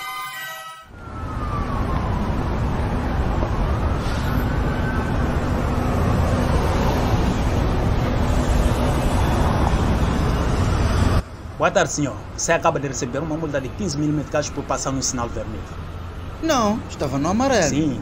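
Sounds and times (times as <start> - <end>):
siren wailing: 0.0 - 11.2
traffic rumble: 0.9 - 18.0.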